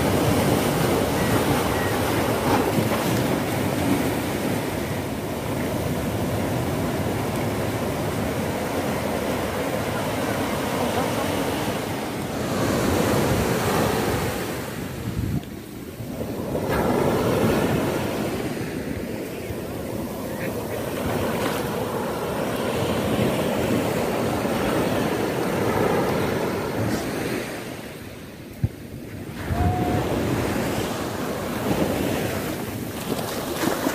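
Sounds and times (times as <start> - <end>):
sea waves breaking over rocks: 0.0 - 33.9
wind buffeting microphone: 12.4 - 27.1, 28.6 - 32.8.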